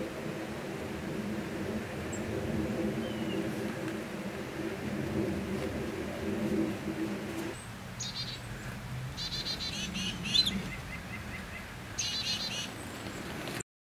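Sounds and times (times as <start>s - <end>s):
songbird chirping: 3.0s - 3.6s, 7.5s - 13.3s.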